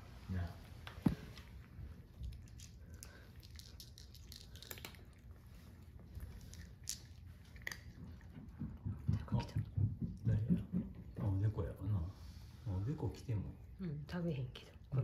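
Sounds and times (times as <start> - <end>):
cats crunching dry kibble: 1.4 - 9.5.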